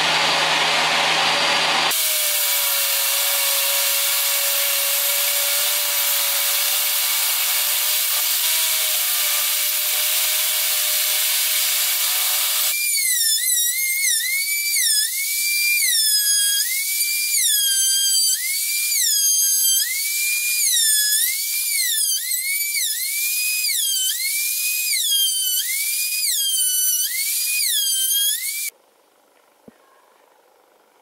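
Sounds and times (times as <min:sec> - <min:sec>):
router motor whine cutting wood: 0:00.0 - 0:28.7.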